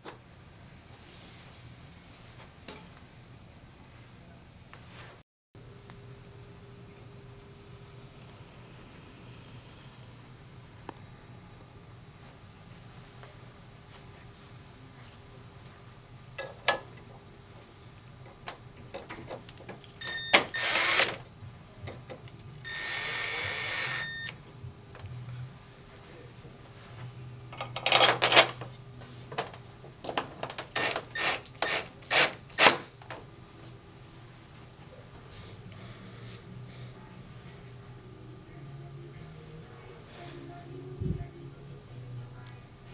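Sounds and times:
power screwdriver running: 20.1 - 21.2, 22.7 - 24.1, 30.8 - 32.8
metal parts clicking and clattering: 27.6 - 28.7.

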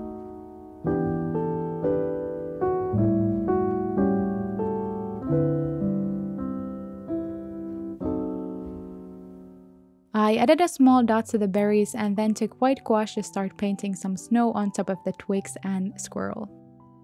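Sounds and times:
slow gentle solo piano: 0.0 - 9.9.

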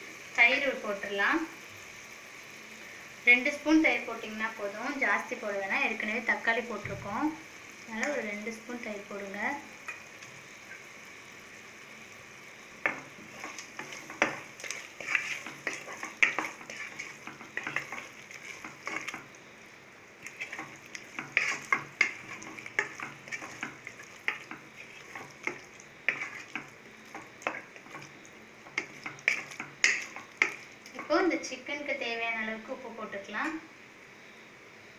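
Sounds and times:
food sizzling in pot: 0.0 - 34.9
spoon scraping pressure cooker: 12.8 - 19.3, 20.3 - 31.1.

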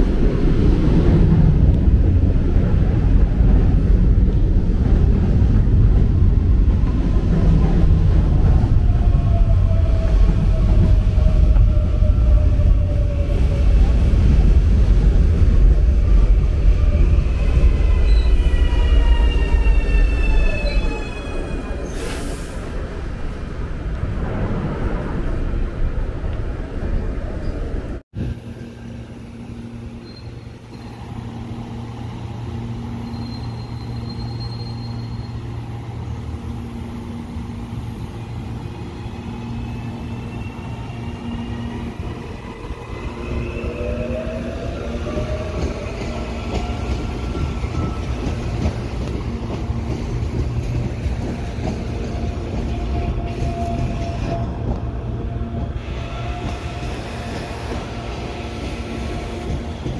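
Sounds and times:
electric train humming: 22.6 - 59.9.

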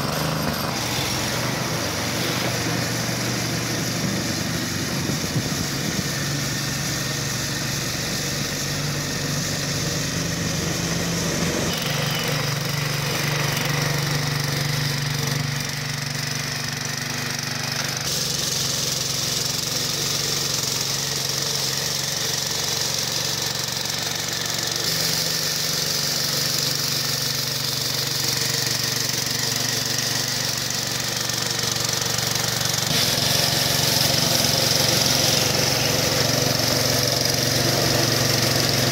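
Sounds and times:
small sweeper engine running: 0.0 - 38.9.

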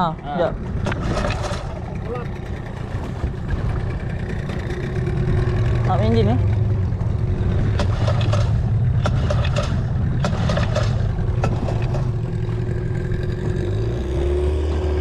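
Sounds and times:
boat engine droning: 0.0 - 15.0
sharp knocks and clicks: 7.7 - 12.2.

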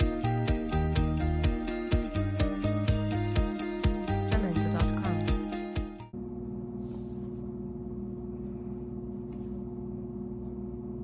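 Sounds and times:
strummed background music: 0.0 - 6.1
steady low hum: 2.4 - 11.0.

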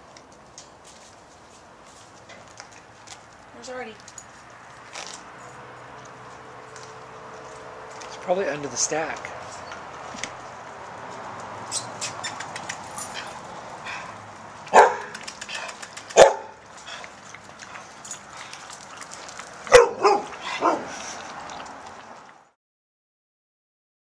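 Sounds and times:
puppies barking: 11.7 - 17.1, 19.6 - 21.2.

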